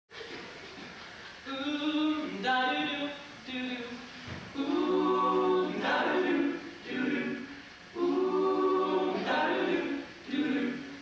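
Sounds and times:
male a cappella group singing: 4.6 - 11.0.

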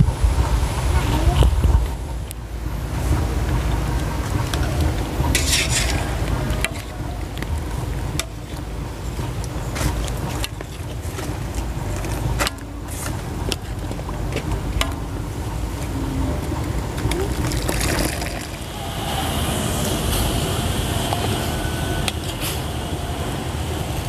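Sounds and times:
steady low rumble: 0.0 - 24.0
water boiling: 2.1 - 21.1
ladle scraping a wok: 5.3 - 7.0.

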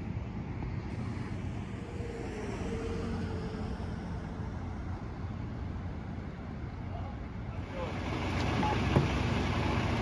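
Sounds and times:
traffic on wet pavement: 0.0 - 10.0
idling vehicle engines: 3.0 - 10.0.

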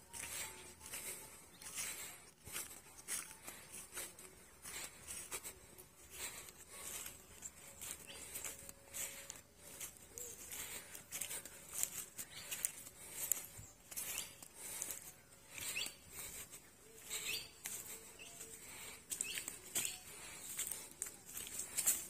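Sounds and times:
footsteps crunching dry leaves: 0.0 - 22.0
bird chirps: 9.9 - 14.5, 15.5 - 20.5.

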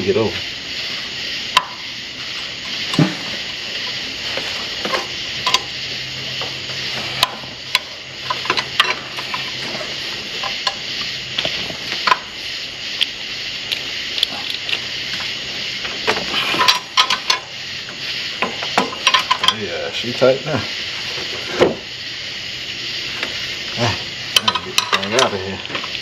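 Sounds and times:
steady hiss: 0.0 - 26.0
wrench clinking on engine parts: 16.5 - 17.5, 18.5 - 19.6, 24.3 - 26.0.

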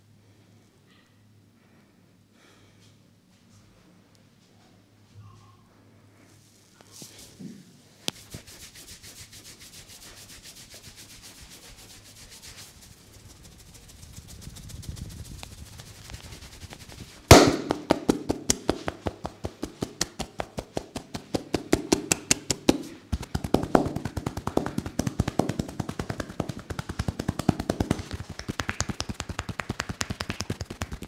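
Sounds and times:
soft rubbing of hair: 6.0 - 31.0
hands slapping and tapping scalp: 15.4 - 31.0.

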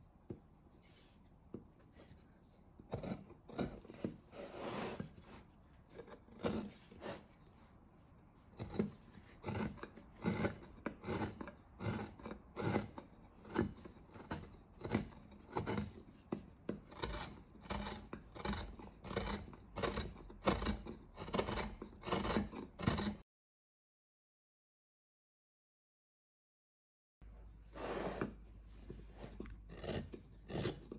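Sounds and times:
gouge scraping cuts in wood: 2.8 - 7.5, 8.5 - 23.2, 27.7 - 30.9.

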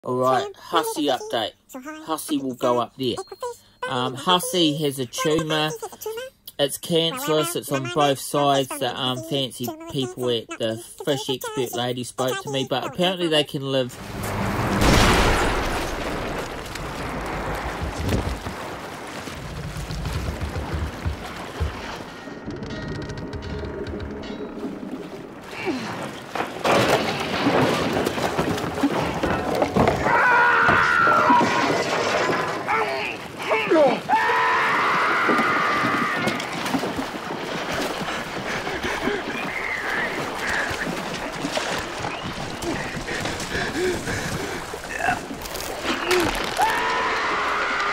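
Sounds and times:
cries and groans: 0.4 - 6.4, 32.7 - 36.6
churning sea: 7.0 - 47.9
boat noise: 7.1 - 47.9
water splashing: 13.6 - 47.9
low rumbling: 13.9 - 26.3
loud water crash: 14.0 - 22.2
man screaming: 32.7 - 36.4.

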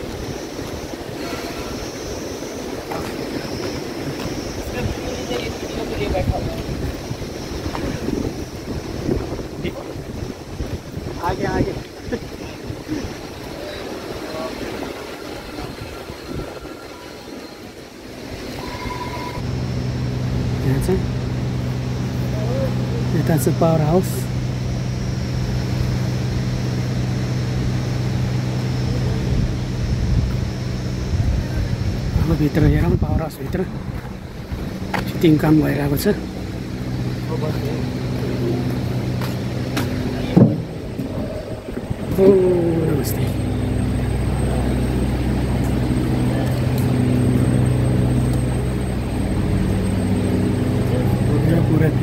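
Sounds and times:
hiss: 0.0 - 19.4
low machine drone: 0.0 - 52.0.

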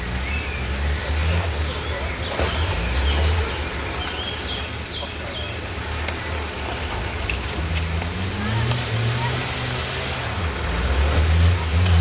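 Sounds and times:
birds chirping: 0.0 - 7.8.

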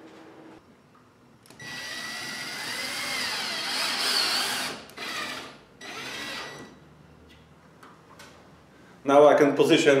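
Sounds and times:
cordless drill driving screw: 1.5 - 6.7.

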